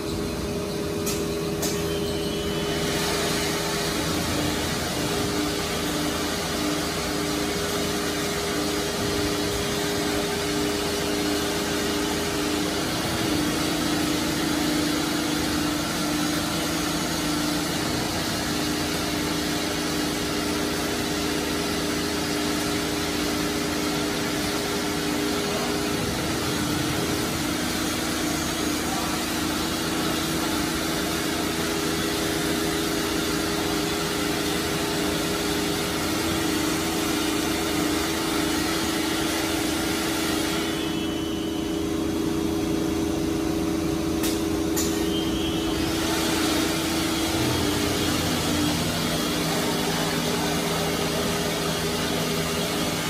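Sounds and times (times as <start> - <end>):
dust extraction and cutting hiss: 44.2 - 53.0.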